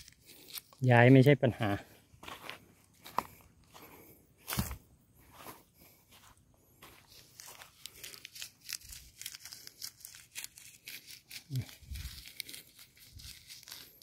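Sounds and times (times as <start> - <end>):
dry crinkling and rustling: 6.9 - 14.0.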